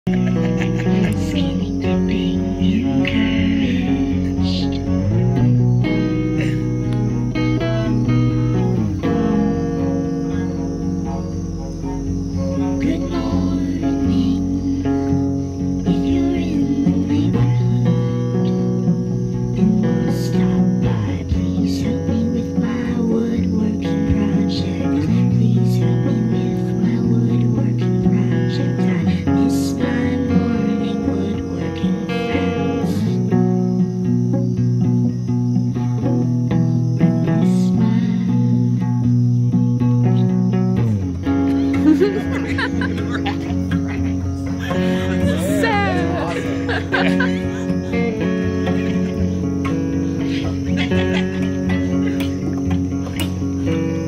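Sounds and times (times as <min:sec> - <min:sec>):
electric guitar drone: 0:00.0 - 0:54.0.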